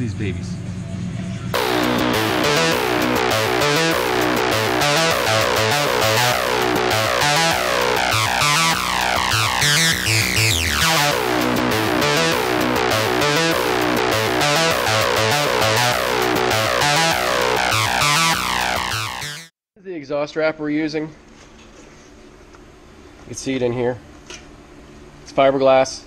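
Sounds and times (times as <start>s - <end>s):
electronic synthesizer music: 1.6s - 19.5s
sweeping effect: 1.6s - 19.5s.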